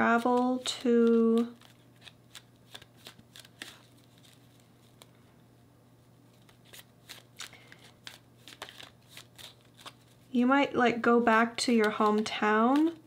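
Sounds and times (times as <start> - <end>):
card deck shuffled by hand: 0.0 - 5.1, 6.3 - 10.3.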